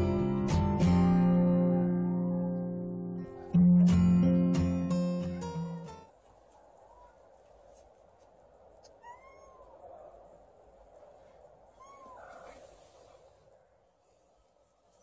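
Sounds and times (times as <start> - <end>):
faint background hiss: 0.0 - 15.0
kitten meowing: 8.9 - 9.8, 11.7 - 12.6.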